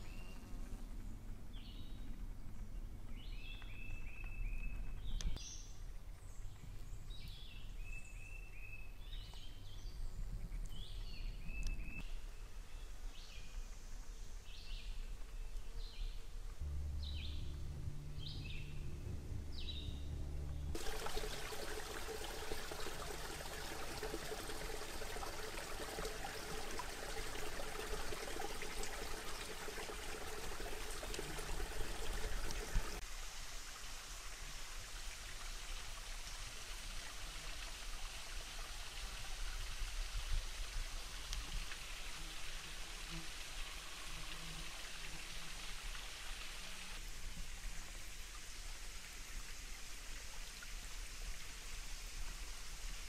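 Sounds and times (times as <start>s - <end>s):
low hum: 16.4s - 33.0s
small stream rushing: 20.7s - 53.0s.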